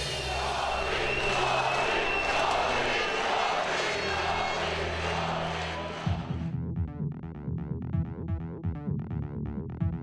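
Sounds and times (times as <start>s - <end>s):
crowd noise: 0.0s - 6.5s.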